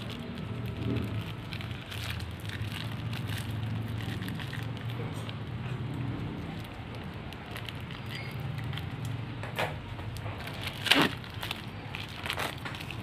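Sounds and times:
rain pattering: 0.0 - 8.0
plastic wrap crinkling: 0.0 - 9.3, 10.0 - 13.0.

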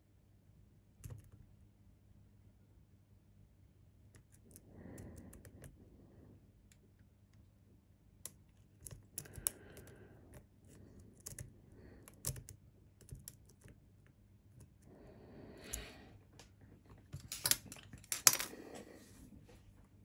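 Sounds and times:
lock pick clicking and scraping: 8.2 - 13.8, 17.1 - 18.5.

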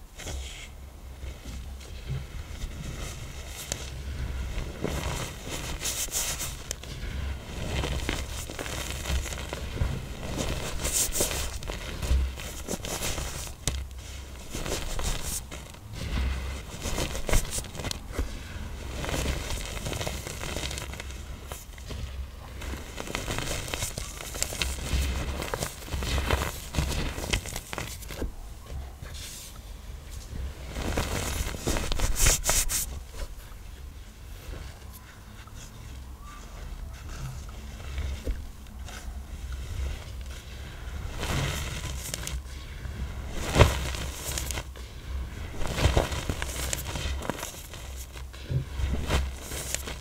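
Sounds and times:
blocks crunching and crumbling: 4.6 - 28.4, 43.2 - 44.8, 45.5 - 50.0
powder blocks crunching and crumbling: 22.4 - 28.4, 40.7 - 44.8, 45.4 - 50.0.

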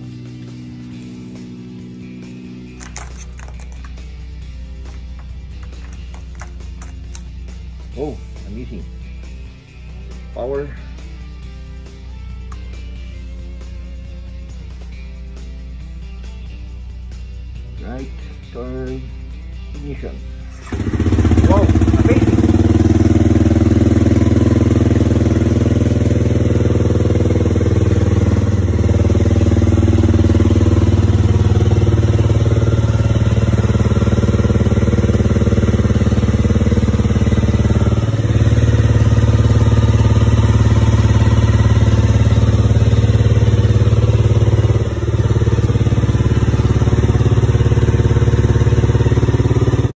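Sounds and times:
motorcycle engine idling: 0.0 - 49.9.

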